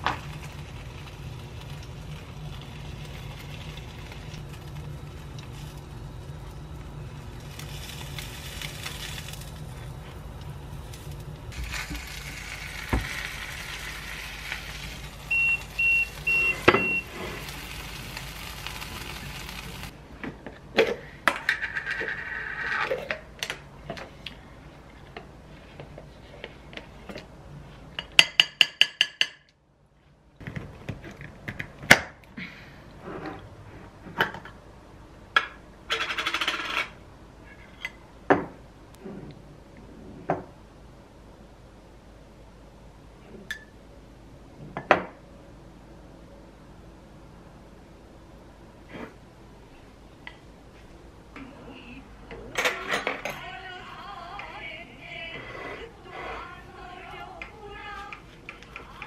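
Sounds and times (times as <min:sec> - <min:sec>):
food sizzling in a frying pan: 0:00.0 - 0:19.9.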